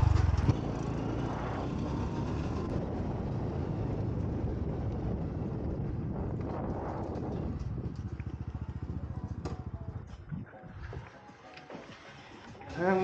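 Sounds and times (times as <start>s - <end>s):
motorcycle engine running: 0.0s - 10.4s
road and wind noise: 0.0s - 11.2s.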